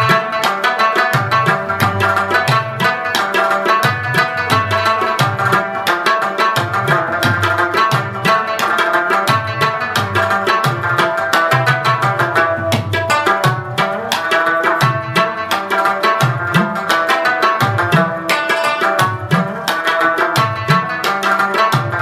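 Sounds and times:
music with quick drum beat: 0.0 - 22.0.

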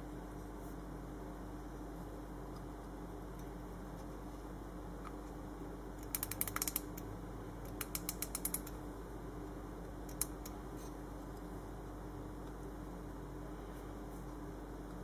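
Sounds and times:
watch winding ratchet clicks: 6.0 - 7.0, 7.8 - 8.7.

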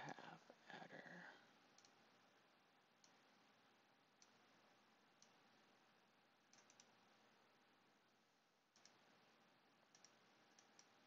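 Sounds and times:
faint steady hiss: 0.0 - 11.0
computer mouse clicks: 1.7 - 2.0, 3.0 - 3.3, 4.2 - 4.4, 5.1 - 5.4, 6.4 - 7.0, 8.7 - 9.2, 9.9 - 11.0.

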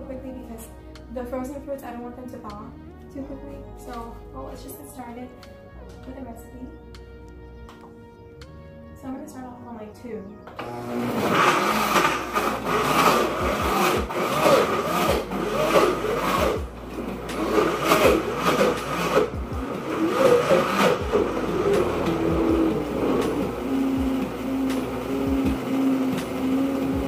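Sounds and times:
blender motor running: 10.6 - 27.0.

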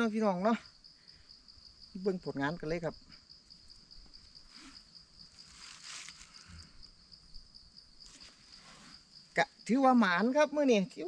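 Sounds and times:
insect chirring: 0.0 - 11.0
soft rustling: 4.2 - 6.6, 8.0 - 9.2.

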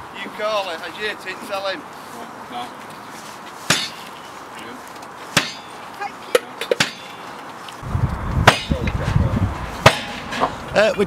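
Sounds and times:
low rumble: 7.8 - 9.8.

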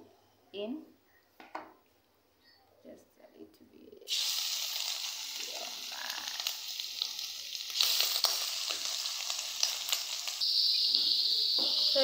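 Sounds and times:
liver sizzling in hot oil: 4.1 - 12.0.

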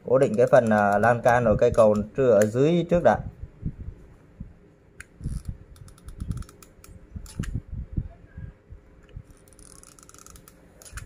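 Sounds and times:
plastic straws clicking and tapping: 0.2 - 2.6
light creak: 5.2 - 7.6, 9.1 - 11.0.

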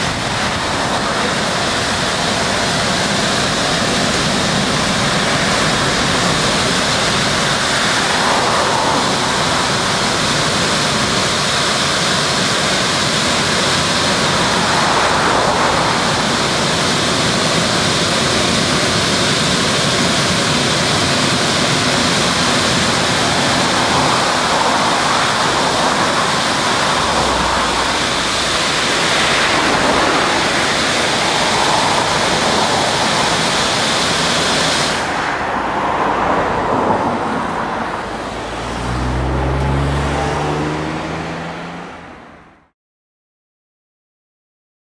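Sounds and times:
car wash rushing noise: 0.0 - 42.7.

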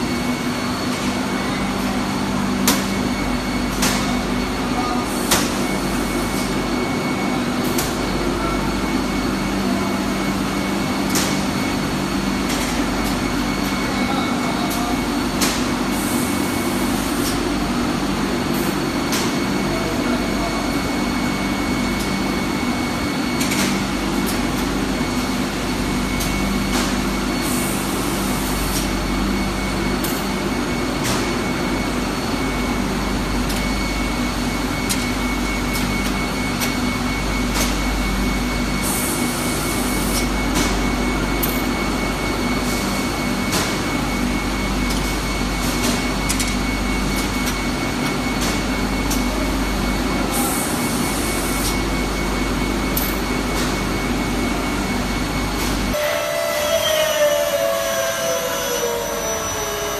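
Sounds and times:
machinery whirring: 0.0 - 59.9
thin high whine: 55.9 - 59.9.

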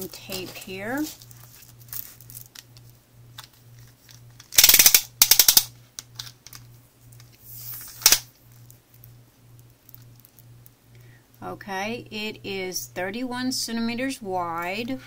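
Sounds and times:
tape measure clicking: 4.6 - 5.7.

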